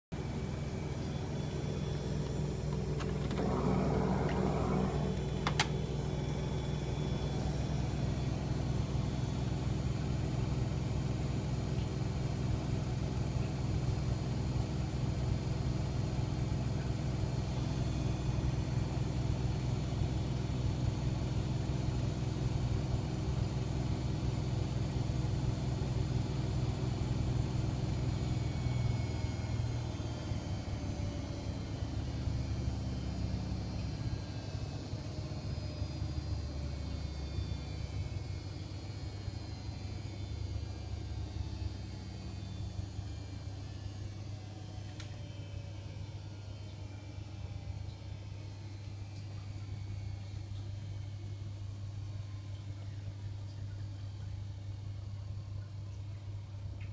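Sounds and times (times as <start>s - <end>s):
washing machine spinning: 0.1s - 56.9s.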